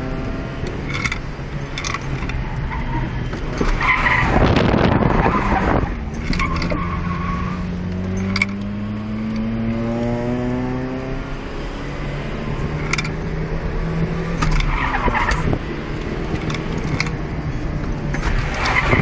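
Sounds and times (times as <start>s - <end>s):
car engine accelerating: 0.0s - 19.0s
tyres screeching: 0.7s - 9.5s, 14.2s - 17.3s.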